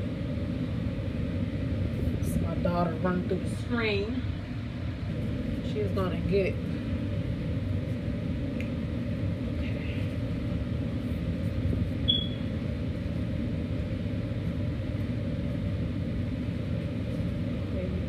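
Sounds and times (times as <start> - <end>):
low background rumble: 0.0 - 18.0
short high chirp: 12.1 - 12.4.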